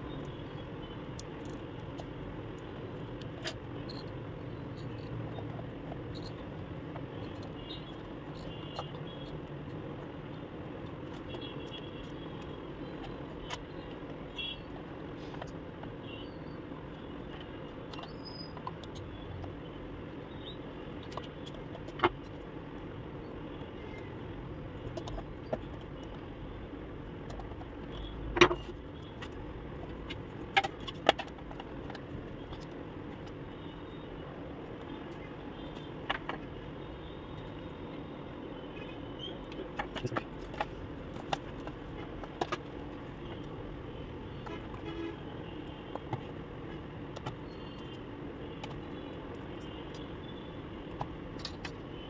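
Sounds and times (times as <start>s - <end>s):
plastic parts clicking and knocking: 21.0s - 22.9s, 24.8s - 26.3s, 27.0s - 33.5s, 34.6s - 36.6s, 39.4s - 43.6s, 45.6s - 46.4s, 47.1s - 50.1s.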